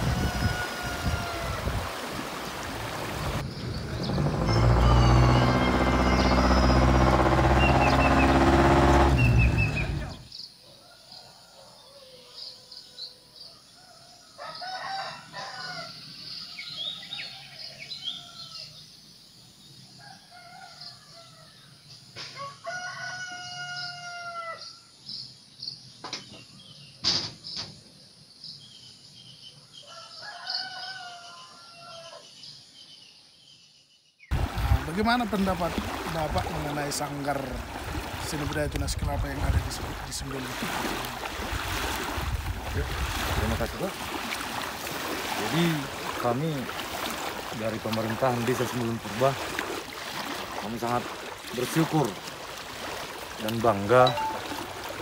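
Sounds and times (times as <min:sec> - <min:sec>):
rooster crowing: 0:00.0 - 0:01.8, 0:04.5 - 0:06.8, 0:13.8 - 0:16.0, 0:22.4 - 0:24.8, 0:29.8 - 0:32.3
loud low drone: 0:03.6 - 0:10.2.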